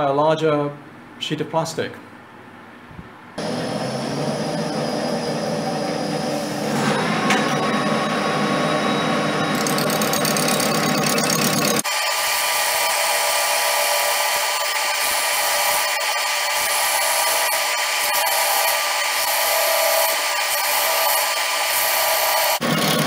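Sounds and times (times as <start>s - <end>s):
lathe machine whine: 3.4s - 23.0s.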